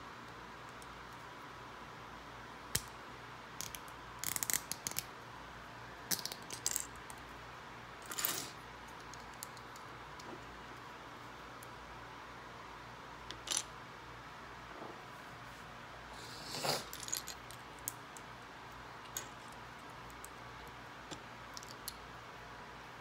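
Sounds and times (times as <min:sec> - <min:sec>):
plastic bricks clicking and clattering: 0:06.1 - 0:06.9.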